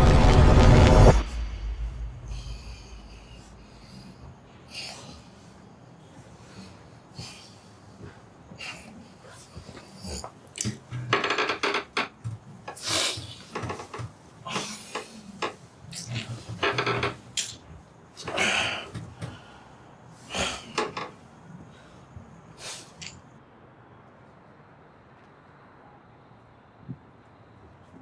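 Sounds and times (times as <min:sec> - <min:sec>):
clothes and bedding rustling: 0:02.8 - 0:23.3
man groaning and breathing hard: 0:18.2 - 0:19.7.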